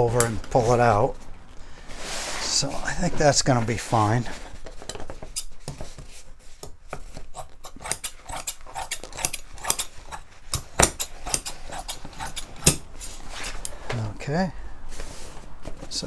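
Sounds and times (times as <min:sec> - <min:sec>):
scissors snipping fabric: 0:07.3 - 0:12.9.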